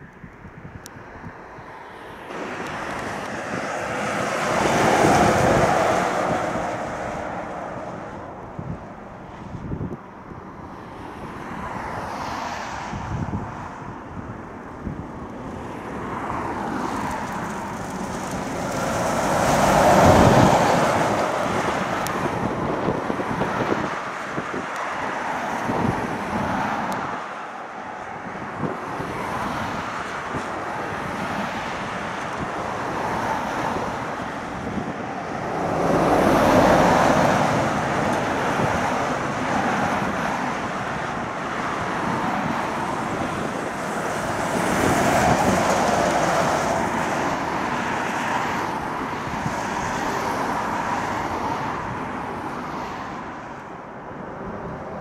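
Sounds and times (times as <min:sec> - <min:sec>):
traffic road roar: 0:00.0 - 0:55.0
vehicles passing by: 0:00.0 - 0:55.0
wind on microphone: 0:00.0 - 0:55.0.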